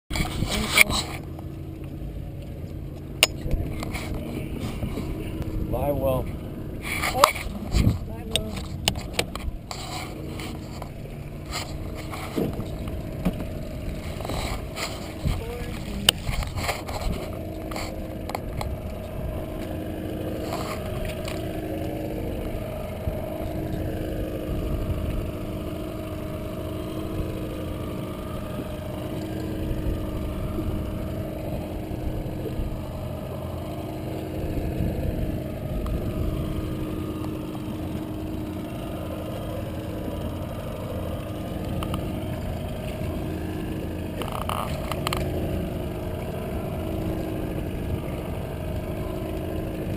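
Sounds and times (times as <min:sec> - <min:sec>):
outboard motor droning: 0:00.1 - 0:49.9.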